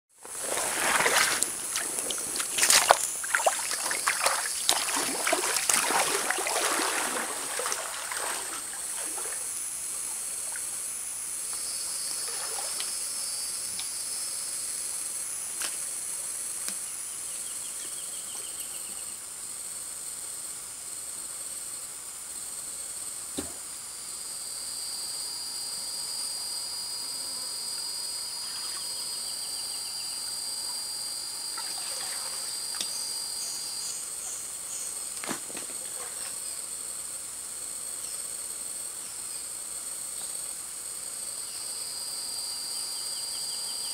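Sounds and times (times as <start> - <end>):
insects droning: 0.1 - 43.9
water splashing and sloshing: 0.2 - 10.8, 12.2 - 12.9, 31.5 - 32.9
shallow stream hissing: 0.2 - 43.9.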